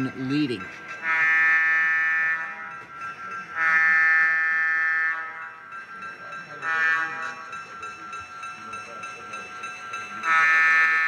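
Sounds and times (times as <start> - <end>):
model locomotive horn blasts: 1.0 - 2.6, 3.5 - 5.6, 6.6 - 7.6, 10.2 - 11.0.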